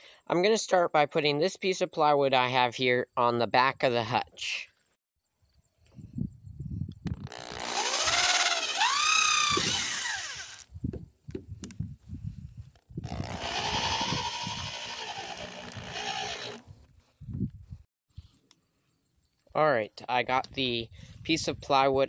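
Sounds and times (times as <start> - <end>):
electric drill driving screws: 7.2 - 10.7, 13.0 - 16.8.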